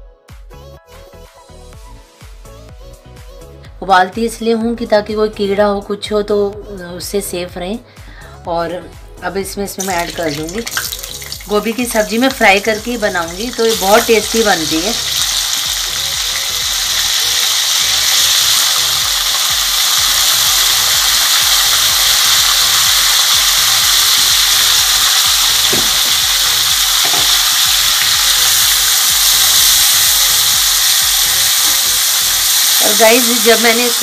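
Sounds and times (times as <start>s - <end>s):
vegetables sizzling in hot oil: 9.7s - 34.0s.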